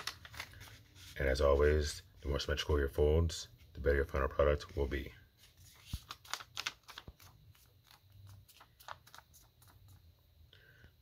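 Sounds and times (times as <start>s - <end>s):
paper rustling and crinkling: 0.0s - 1.6s, 5.4s - 10.0s
small clicks of paper: 5.8s - 10.0s.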